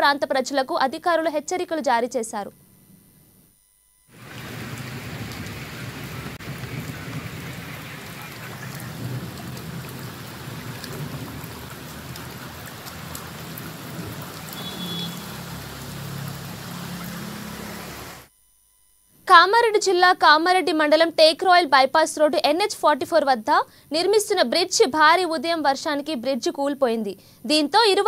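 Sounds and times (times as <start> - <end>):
heavy rain: 4.1 - 18.3.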